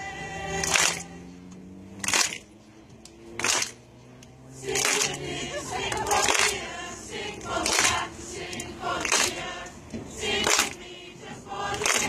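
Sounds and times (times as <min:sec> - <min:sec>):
voices chanting in rhythm: 0:00.0 - 0:01.5, 0:04.3 - 0:12.0.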